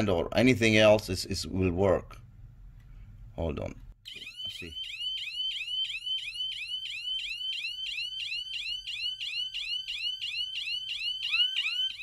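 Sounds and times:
muffled electronic alarm siren: 0:04.0 - 0:12.0.

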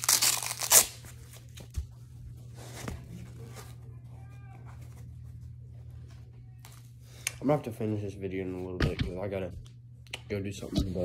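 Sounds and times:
rustling and handling noise: 0:00.0 - 0:07.3.

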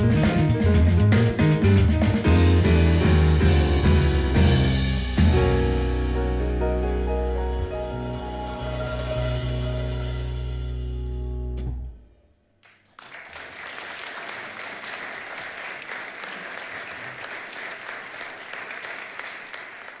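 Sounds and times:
jazz piano trio chord: 0:00.0 - 0:12.1
audience applauding: 0:12.6 - 0:20.0.

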